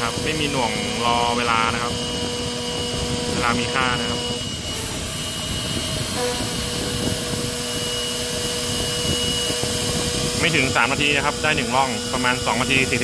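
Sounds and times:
end mill rasping through metal: 0.0 - 13.0
router spindle whine: 0.0 - 13.0.

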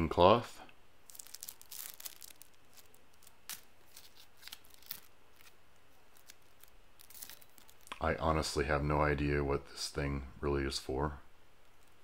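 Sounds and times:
plastic sleeve crinkling: 1.0 - 8.2.

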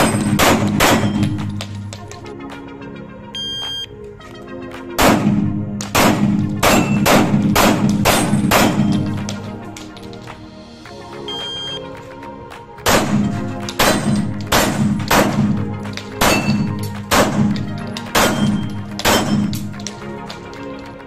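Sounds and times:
pistol shots: 0.0 - 1.8, 5.0 - 9.6, 12.8 - 19.9
background music: 0.0 - 21.0.

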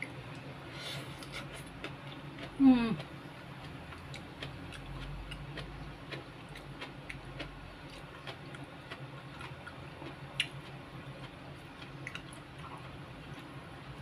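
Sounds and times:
wet chewing clicks: 1.2 - 13.5.

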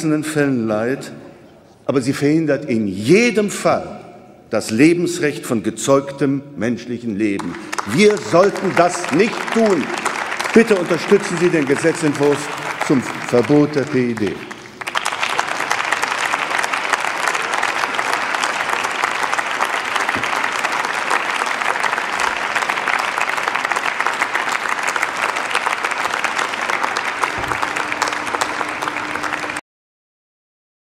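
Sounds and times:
crowd applauding: 7.4 - 29.6.

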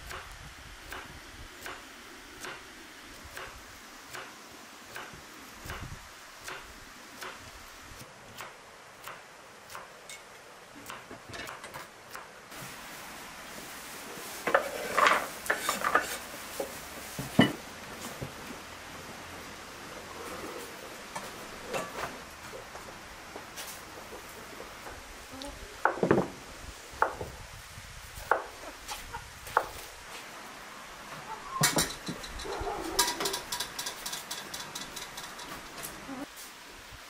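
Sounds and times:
metal kitchenware clattering: 31.6 - 35.8.

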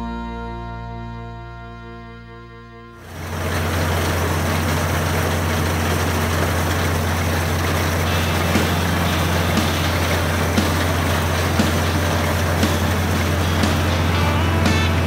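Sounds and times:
background music: 0.0 - 15.0
tractor engine drone: 2.8 - 15.0
mower rushing noise: 3.0 - 15.0.

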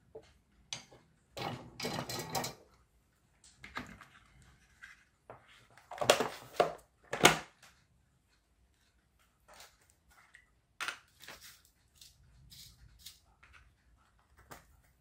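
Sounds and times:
small parts clattering on a workbench: 0.8 - 2.7.

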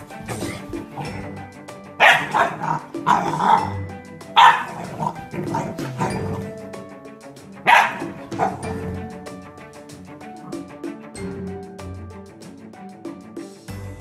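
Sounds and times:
background music: 0.0 - 14.0
puppy barking: 2.0 - 6.5, 7.6 - 8.9.

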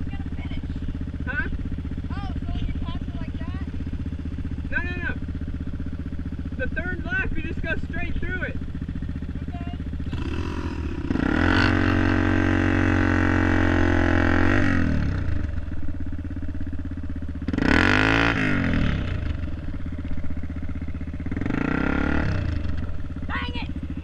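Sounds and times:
dirt bike engine revving: 0.0 - 24.0.

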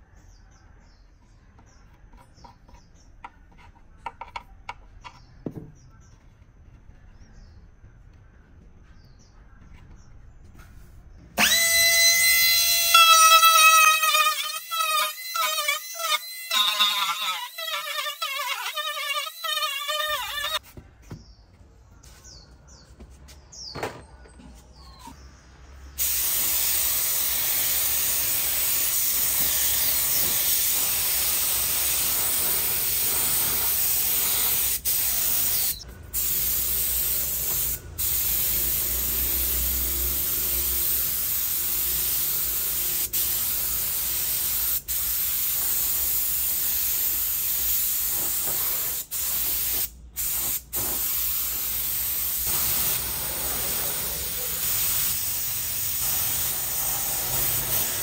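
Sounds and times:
spray gun hissing: 26.0 - 58.0.

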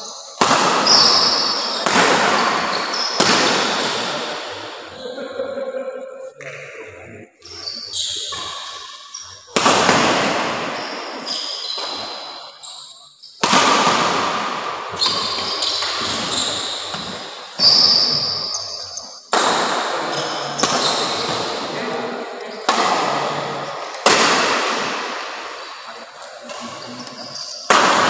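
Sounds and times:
rackets hitting shuttlecock: 0.1 - 4.7, 8.3 - 12.6, 13.4 - 18.6, 19.3 - 25.9, 27.4 - 28.0
shoes squeaking on court: 7.4 - 9.5, 10.6 - 13.4, 15.0 - 19.2, 20.1 - 21.6, 26.5 - 27.7.

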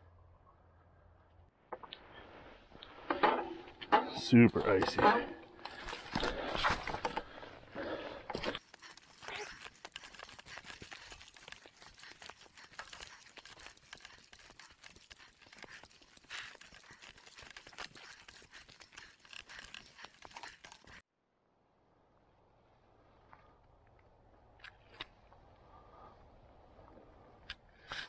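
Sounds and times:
faint outdoor background: 0.0 - 28.0
bike tyres crunching leaves and gravel: 5.7 - 21.0.

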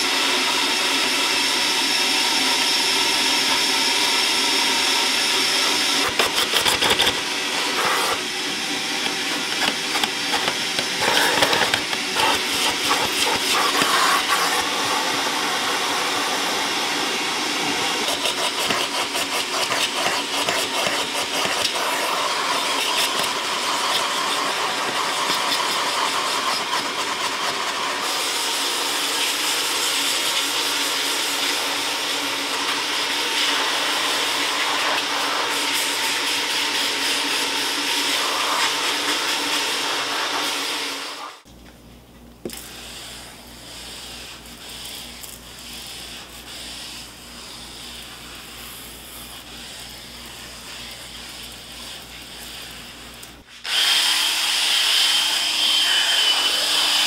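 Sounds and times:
cordless drill whining: 0.0 - 19.2, 53.2 - 57.0
vacuum cleaner running: 0.0 - 41.5, 42.4 - 57.0.

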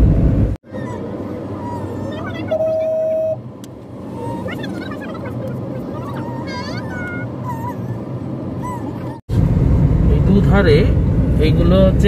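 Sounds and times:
car driving rumble: 0.0 - 12.0
birds chirping: 4.1 - 9.2.

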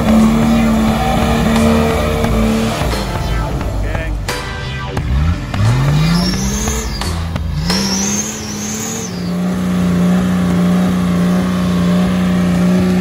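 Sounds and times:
engine revving hard: 0.0 - 13.0
wheels churning through mud: 5.6 - 13.0.

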